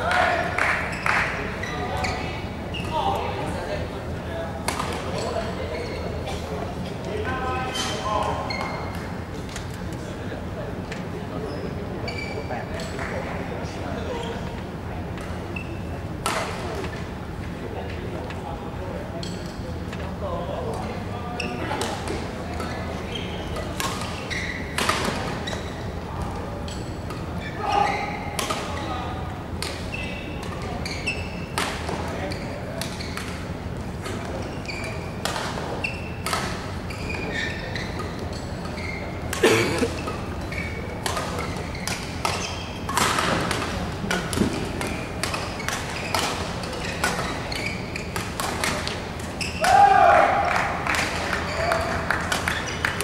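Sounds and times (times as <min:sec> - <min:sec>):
shoes squeaking on court floor: 0:00.2 - 0:03.6, 0:04.7 - 0:10.1, 0:11.4 - 0:13.1, 0:14.0 - 0:14.6, 0:15.2 - 0:16.0, 0:20.8 - 0:49.8, 0:50.9 - 0:53.0
rackets striking shuttlecock: 0:35.2 - 0:36.8, 0:37.9 - 0:47.4, 0:48.1 - 0:49.8.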